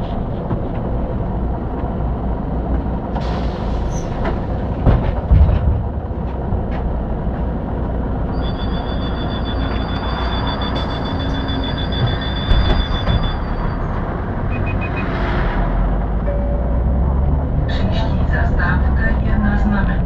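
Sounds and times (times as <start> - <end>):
bus engine rumble: 0.0 - 20.0
high two-tone beep: 8.3 - 15.1, 16.2 - 16.9.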